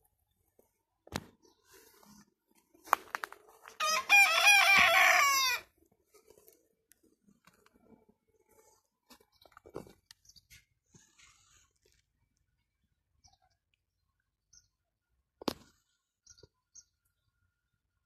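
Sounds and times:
rooster crowing: 3.8s - 5.7s.

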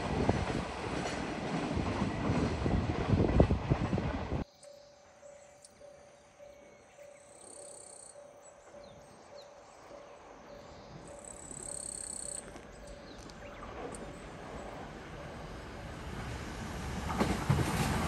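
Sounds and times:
low rumble of train: 0.0s - 18.0s
birds chirping: 4.4s - 15.0s.

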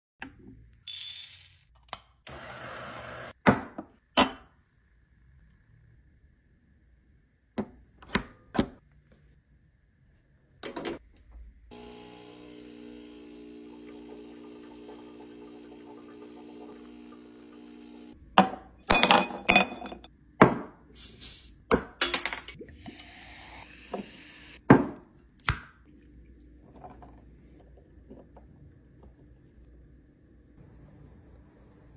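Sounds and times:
espresso machine pump humming: 11.7s - 18.2s, 22.7s - 24.6s
tonic water fizzing into glass: 13.4s - 17.8s
glass clinks: 18.9s - 20.1s.

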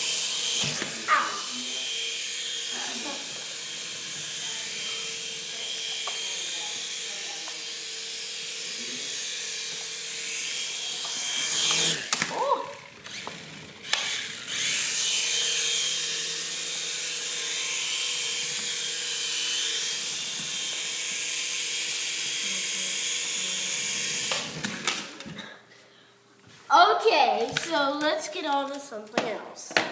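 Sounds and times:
toy helicopter motor whining: 0.0s - 25.0s.

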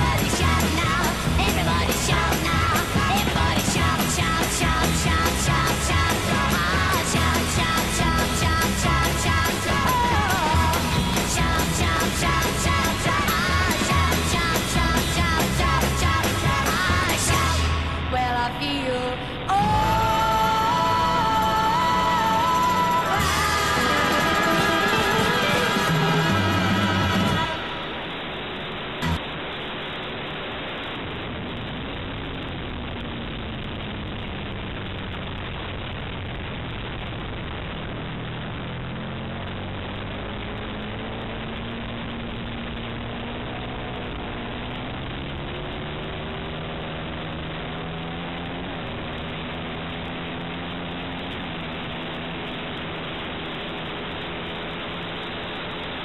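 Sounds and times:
motorcycle engine revving: 19.7s - 28.1s, 37.8s - 56.0s.

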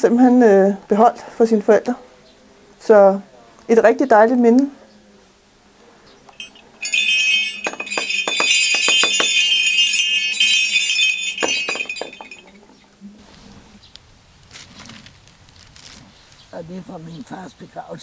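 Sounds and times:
sleigh bells jingling: 6.4s - 12.6s.

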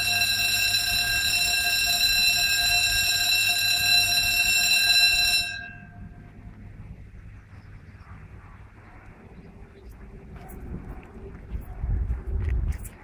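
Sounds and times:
level crossing alarm tone: 0.0s - 6.2s.

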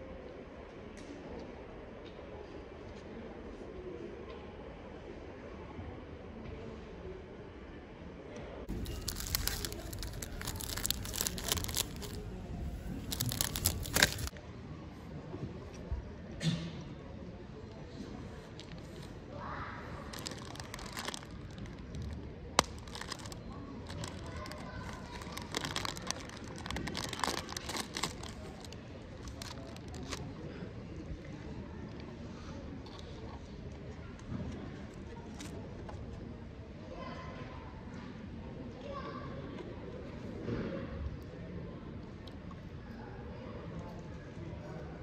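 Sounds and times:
wrapper crinkling and tearing: 8.7s - 14.3s, 20.0s - 30.2s.

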